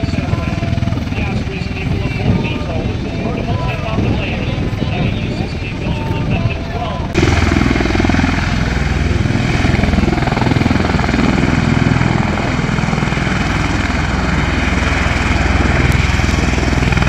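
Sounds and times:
rotors beating: 0.0s - 17.0s
turbine engines rushing: 0.0s - 17.0s.

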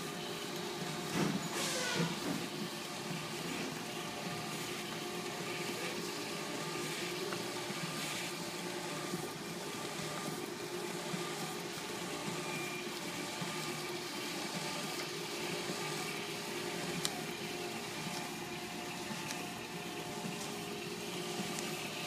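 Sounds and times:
printer motor hum: 0.0s - 22.0s.

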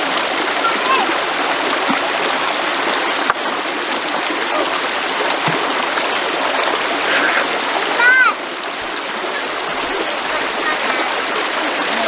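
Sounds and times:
river water flowing: 0.0s - 12.0s.

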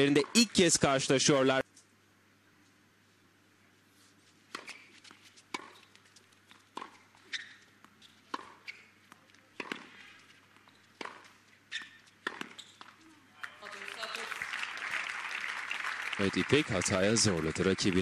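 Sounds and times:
tennis racket striking ball: 4.5s - 5.9s, 6.6s - 13.0s
tennis ball bouncing: 4.5s - 13.0s.

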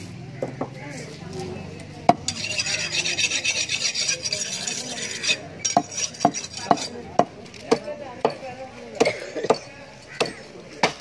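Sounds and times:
knife scraping fish: 2.3s - 7.0s
knife chopping into wood: 5.7s - 8.4s.

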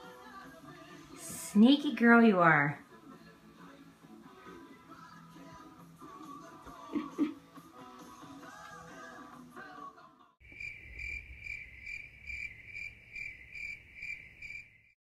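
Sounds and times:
background music: 0.0s - 10.4s
cricket chirping: 10.4s - 15.0s.

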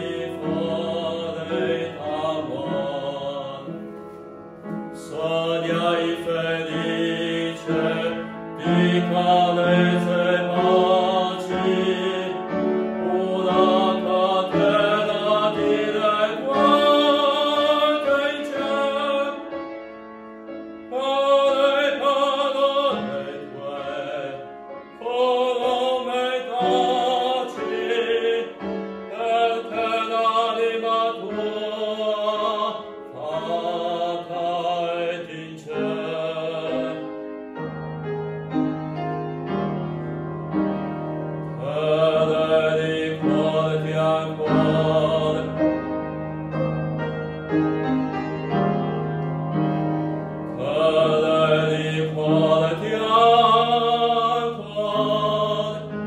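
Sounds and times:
man singing operatically: 0.0s - 3.8s, 5.0s - 19.5s, 20.9s - 37.1s, 41.6s - 45.6s, 50.6s - 56.0s
piano accompaniment: 0.0s - 56.0s.

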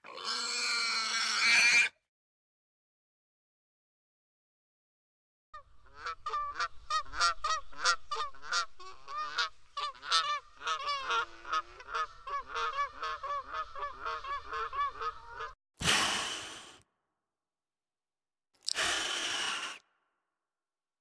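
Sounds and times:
flock of birds calling: 6.0s - 15.5s.

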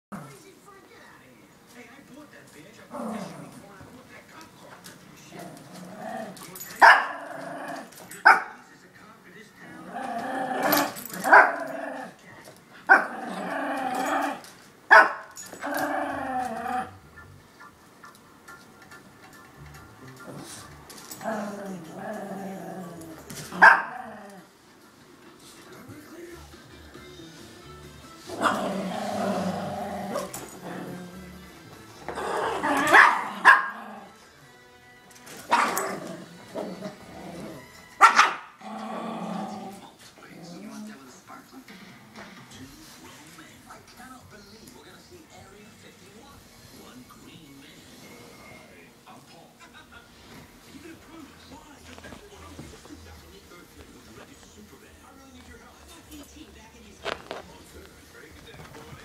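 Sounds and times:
dog play-growling: 2.7s - 8.6s, 9.3s - 26.7s, 27.9s - 34.4s, 35.2s - 49.4s, 50.0s - 59.0s
small dog barking: 6.8s - 7.3s, 8.2s - 8.6s, 14.9s - 15.3s, 23.6s - 24.0s, 32.7s - 33.9s, 35.5s - 36.0s, 38.0s - 38.6s.

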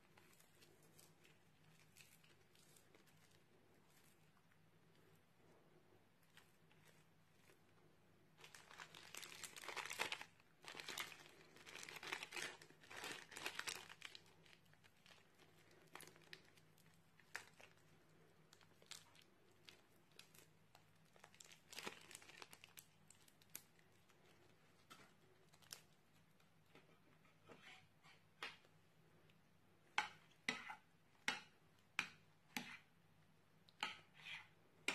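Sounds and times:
crunchy slime crackling and popping: 8.4s - 26.4s.

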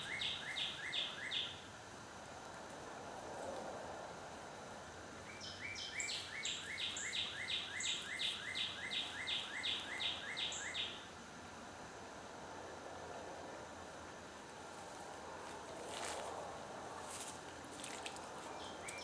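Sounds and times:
songbird singing repeated phrases: 0.0s - 1.7s, 5.2s - 11.2s, 18.3s - 19.0s
steady hiss of woods: 0.0s - 19.0s.

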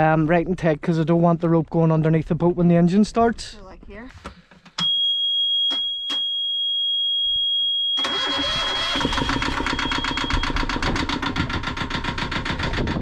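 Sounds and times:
warning buzzer high tone: 7.2s - 10.7s
diesel engine starting and running: 8.0s - 13.0s.

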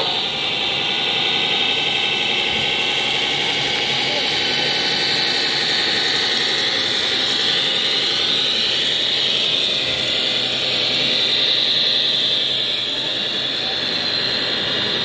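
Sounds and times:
model truck drivetrain whining: 0.0s - 15.0s.

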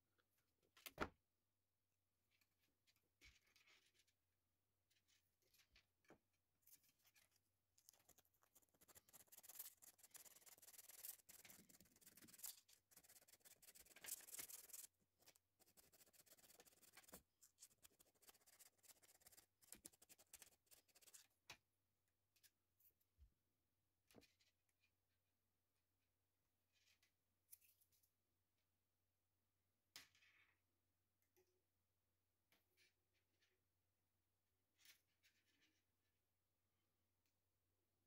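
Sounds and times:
plastic filament rubbing and scraping: 6.6s - 21.3s.

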